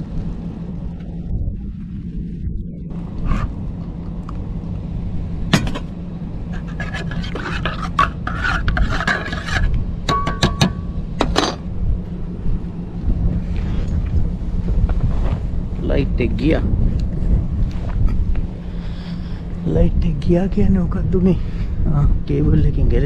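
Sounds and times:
low rumble: 0.0s - 23.0s
gear scraping and clinking: 5.5s - 11.7s.

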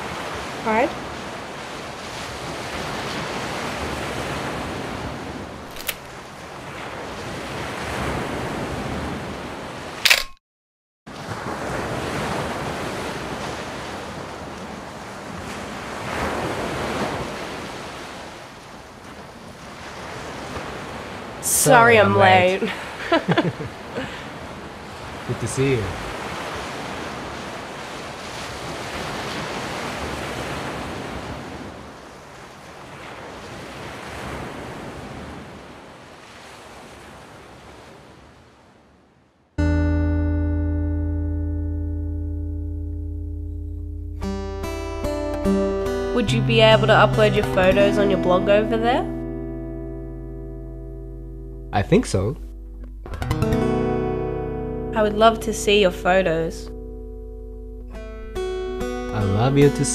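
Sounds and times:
ocean surf washing onto beach: 0.0s - 10.0s, 11.1s - 38.9s
plucked guitar music: 21.4s - 22.7s, 39.6s - 59.9s.

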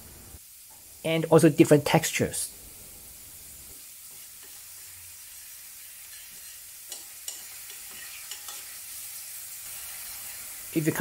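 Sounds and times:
mushrooms sizzling in oil: 0.0s - 11.0s
metal spoon scraping pan: 6.0s - 9.0s.

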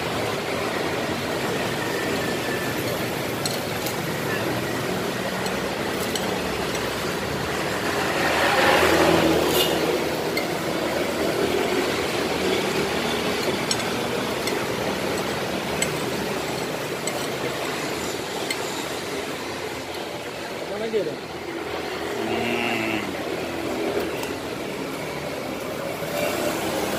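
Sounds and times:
street traffic hum: 0.0s - 26.9s
vehicle passing: 7.0s - 13.9s.

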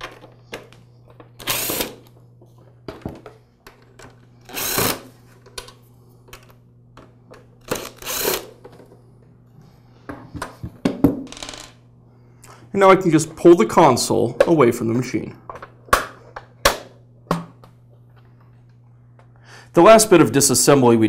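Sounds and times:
cordless screwdriver whirring: 1.4s - 2.0s, 4.5s - 5.1s, 7.7s - 8.5s.

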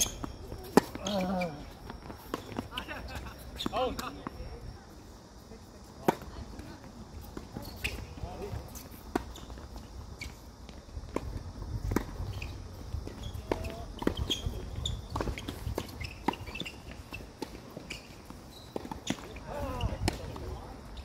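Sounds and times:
footsteps on court: 0.0s - 4.4s.

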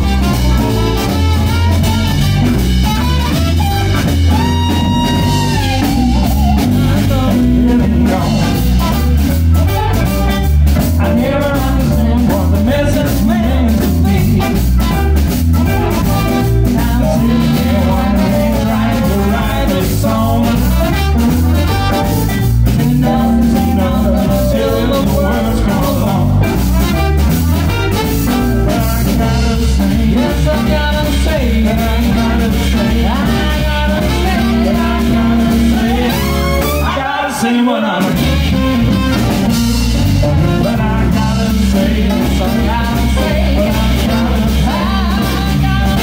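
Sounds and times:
live band playing: 0.0s - 46.0s.

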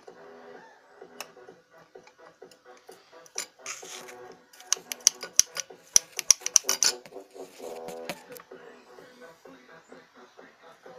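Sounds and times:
engine parts clicking and knocking: 1.0s - 8.2s.

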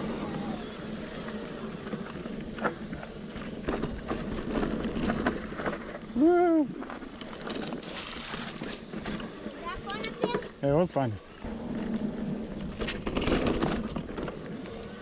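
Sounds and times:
voiced call rising and falling: 0.0s - 1.4s
bike tyre and wind noise: 0.0s - 15.0s
bike clicks and rattles: 1.0s - 15.0s.

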